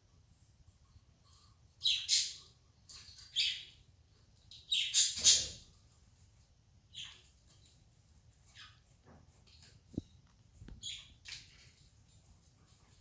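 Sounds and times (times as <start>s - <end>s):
budgerigars chirping: 4.7s - 5.6s.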